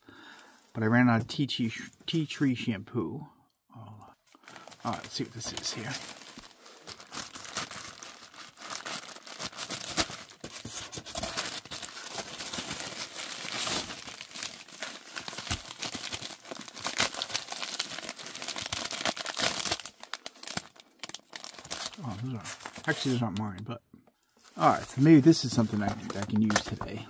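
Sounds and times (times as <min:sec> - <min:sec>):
plastic mailer bag crinkling: 0:04.4 - 0:23.3, 0:24.4 - 0:27.0.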